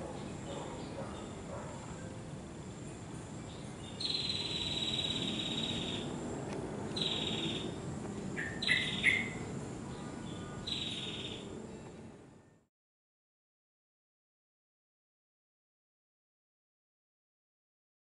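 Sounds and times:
faint high insect tone: 0:00.0 - 0:12.7
buzzy bird calls: 0:08.4 - 0:09.4.

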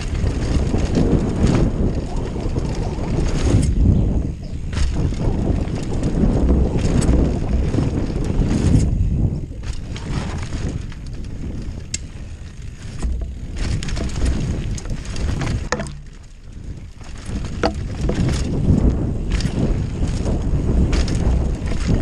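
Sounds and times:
bike clicks and rattles: 0:00.0 - 0:22.0
tyres rumbling over dirt: 0:00.0 - 0:22.0
wind buffeting microphone: 0:00.0 - 0:22.0.

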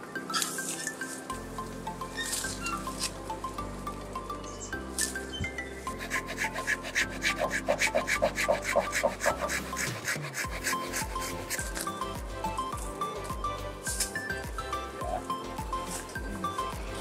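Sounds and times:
background music: 0:00.0 - 0:17.0
hand saw rasping through branch: 0:05.0 - 0:12.1.

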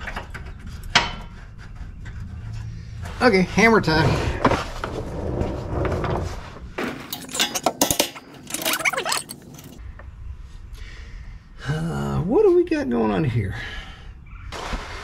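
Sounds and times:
sharp metallic clanks: 0:06.8 - 0:09.8.

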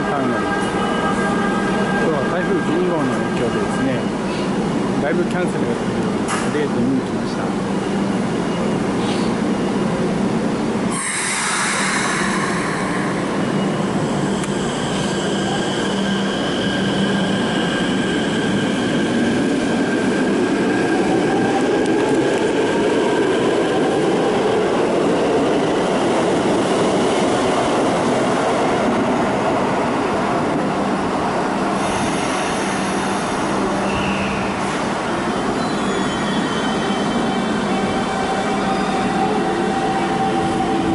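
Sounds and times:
hissing air burst: 0:10.9 - 0:13.7
wheel squeal: 0:35.6 - 0:37.4.

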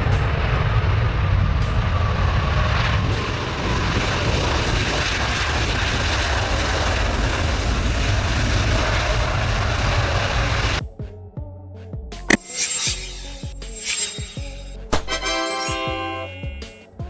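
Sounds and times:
high engine whine: 0:12.3 - 0:14.8.

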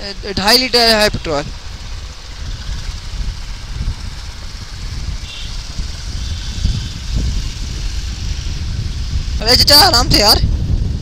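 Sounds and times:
motorcycle engine and road noise: 0:00.0 - 0:11.0
wind buffeting microphone: 0:00.0 - 0:11.0.

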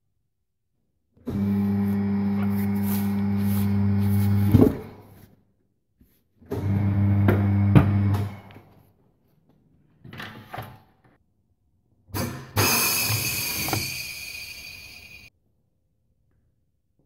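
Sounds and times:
electric motor humming: 0:01.3 - 0:04.5.

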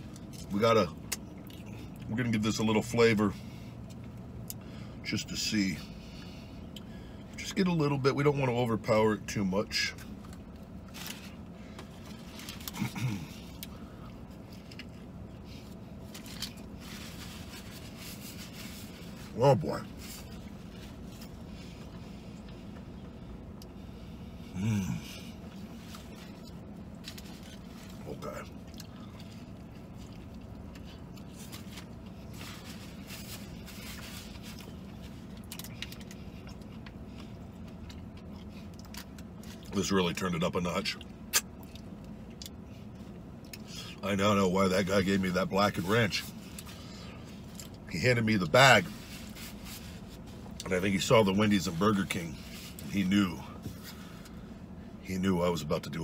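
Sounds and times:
steady low hum: 0:00.0 - 0:56.0
man chewing food: 0:10.1 - 0:19.2, 0:20.0 - 0:39.7.

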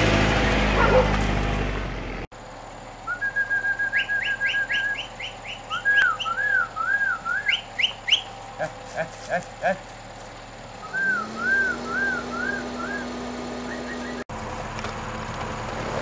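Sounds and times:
car engine running: 0:00.0 - 0:16.0
person whistling: 0:03.1 - 0:08.3, 0:10.8 - 0:13.1.

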